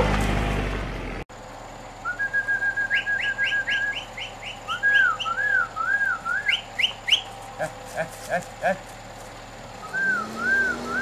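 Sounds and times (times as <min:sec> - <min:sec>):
person whistling: 0:02.1 - 0:04.1, 0:04.7 - 0:07.2, 0:09.8 - 0:11.0.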